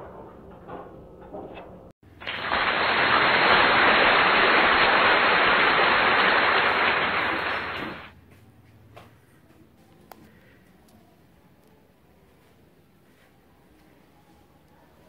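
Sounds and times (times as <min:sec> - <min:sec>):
loud rain-like hiss: 0:02.2 - 0:08.1.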